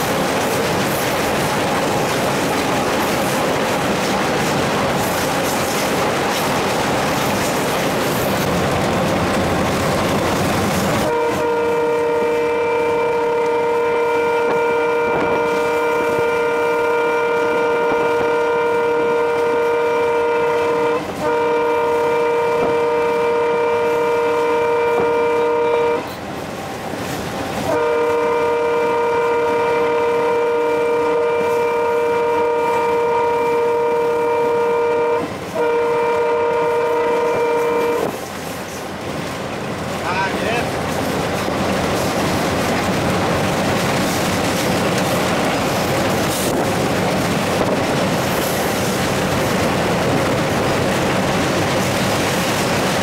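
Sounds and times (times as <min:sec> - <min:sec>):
locomotive rumble: 0:00.0 - 0:53.0
locomotive horn blasts: 0:11.0 - 0:26.2, 0:27.7 - 0:38.2.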